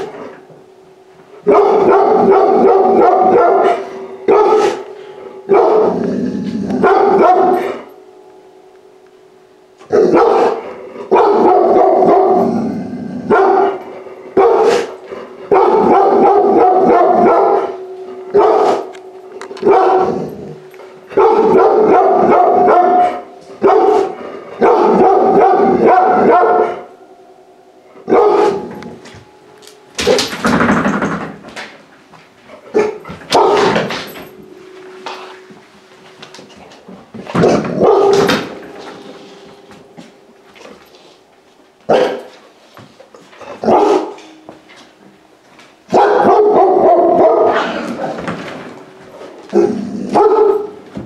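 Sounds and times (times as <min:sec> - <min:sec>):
puppy barking: 0:01.5 - 0:04.8, 0:05.5 - 0:06.0, 0:06.8 - 0:07.8, 0:09.9 - 0:12.5, 0:13.3 - 0:13.8, 0:14.4 - 0:17.8, 0:18.4 - 0:18.9, 0:21.2 - 0:26.9, 0:28.1 - 0:28.7, 0:32.8 - 0:33.8, 0:37.4 - 0:38.3, 0:41.9 - 0:42.3, 0:43.6 - 0:44.2, 0:45.9 - 0:47.7, 0:50.1 - 0:50.8.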